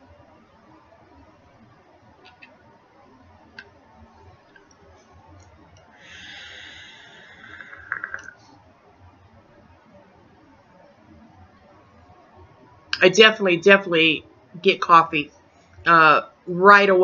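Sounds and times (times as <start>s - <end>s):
atomizer crackles: 4.5s - 8.4s
electronic cigarette draw hiss: 6.0s - 8.4s.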